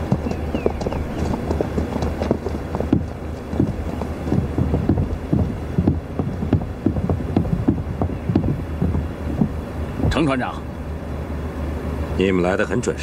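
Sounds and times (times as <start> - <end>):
footsteps on hard surface: 0.0 - 10.2
steady low rumble: 0.0 - 13.0.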